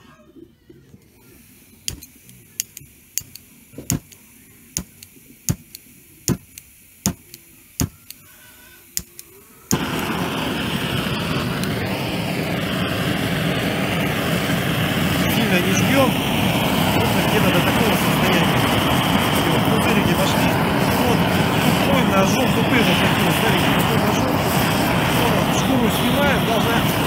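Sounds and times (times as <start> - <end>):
gas burner roaring: 1.0 - 27.0
sharp clicks: 1.9 - 8.3, 9.0 - 9.8.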